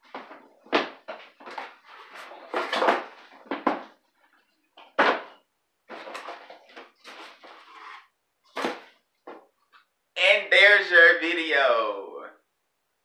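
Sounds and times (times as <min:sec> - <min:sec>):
cardboard rustling: 0:05.9 - 0:09.0.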